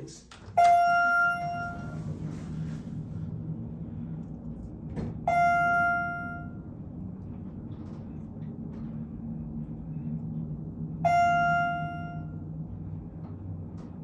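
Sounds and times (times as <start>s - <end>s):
elevator car humming: 0.0s - 14.0s
elevator chime dinging: 0.4s - 2.3s, 5.2s - 7.0s, 10.9s - 12.9s.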